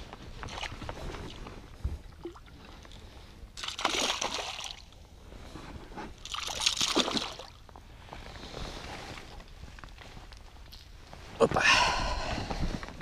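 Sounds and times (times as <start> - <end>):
water splashing and sloshing: 0.0 - 10.2.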